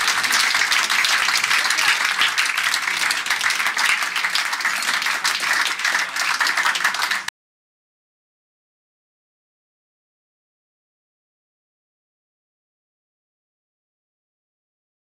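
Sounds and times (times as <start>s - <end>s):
crowd applauding: 0.0s - 7.3s.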